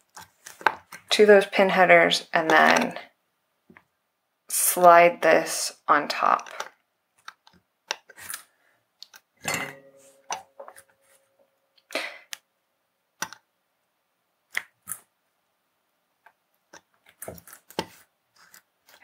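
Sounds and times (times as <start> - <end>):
ringing metal clink: 9.5 - 10.2.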